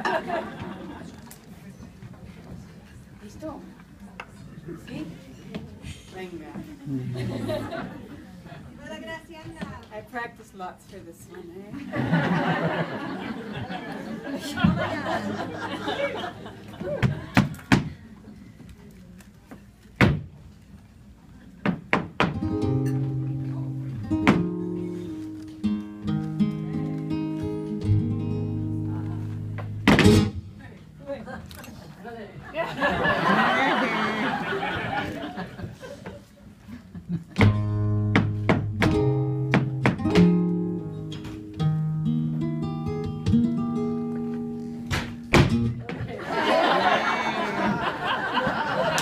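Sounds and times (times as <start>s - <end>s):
dancer's shoe stamping on wood: 21.6s - 22.4s, 37.4s - 40.2s
acoustic guitar chords: 22.3s - 30.6s, 37.4s - 45.8s.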